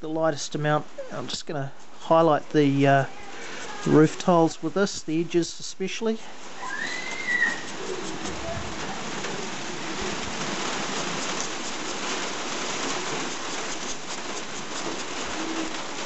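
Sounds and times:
rain on roof: 6.3s - 16.0s.

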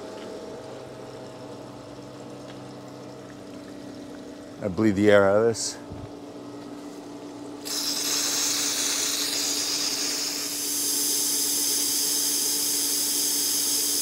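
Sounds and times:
steady low hum: 0.0s - 14.0s
air hissing from valve: 7.6s - 14.0s.

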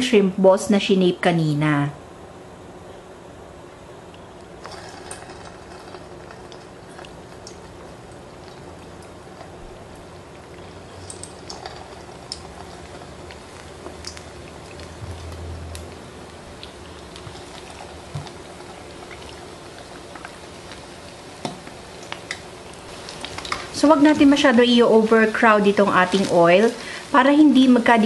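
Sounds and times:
oil bubbling in deep frying: 4.2s - 28.0s
oil popping: 4.6s - 24.2s.

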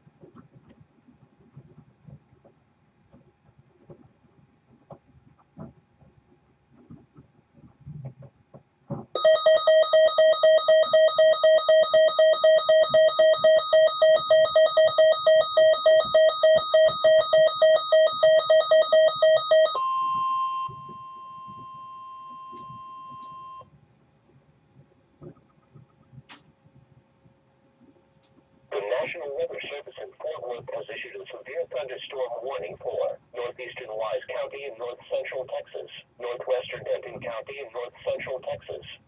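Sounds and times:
rapid alarm beeping: 9.2s - 23.6s.

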